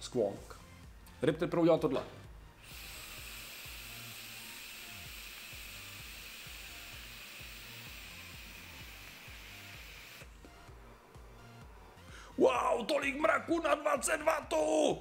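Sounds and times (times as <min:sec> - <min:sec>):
e-cigarette vapour hiss: 0:02.6 - 0:10.3.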